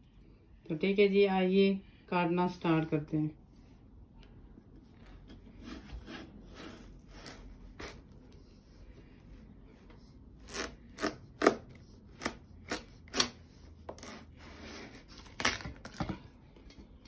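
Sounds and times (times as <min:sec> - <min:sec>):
knife sawing through watermelon rind: 0:05.5 - 0:08.3, 0:10.4 - 0:15.2.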